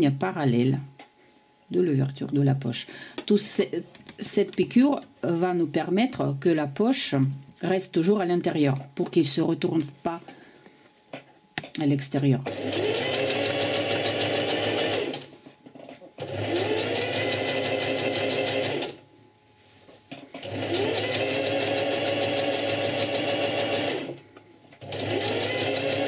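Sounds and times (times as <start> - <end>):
sewing machine motor whine: 12.5 - 15.3, 16.2 - 19.0, 20.4 - 24.2, 24.8 - 26.0.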